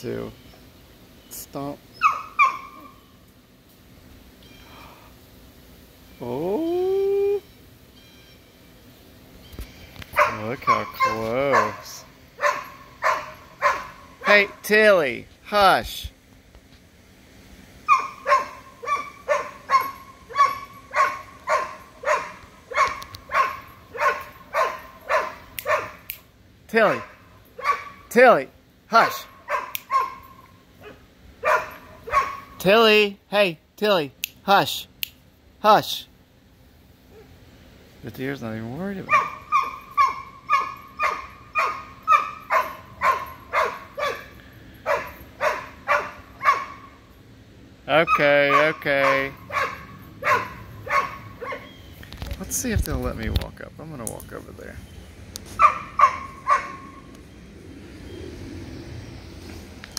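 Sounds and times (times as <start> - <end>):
puppy barking: 2.0 - 3.0, 10.1 - 14.6, 17.9 - 26.1, 26.8 - 28.1, 29.2 - 32.6, 39.0 - 47.0, 48.1 - 51.8, 55.6 - 57.1.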